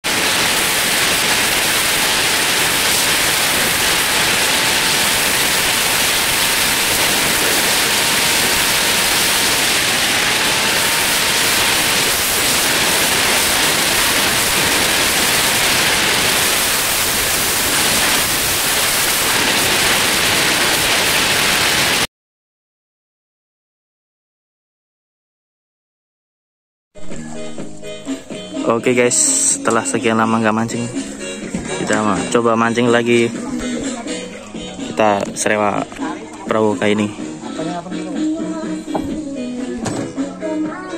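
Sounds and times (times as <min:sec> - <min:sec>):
faint thin whine: 0:00.0 - 0:20.8.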